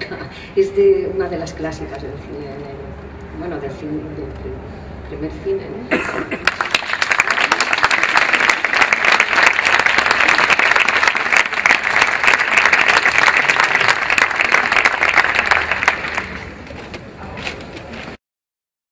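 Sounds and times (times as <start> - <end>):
audience applauding: 6.4 - 16.6.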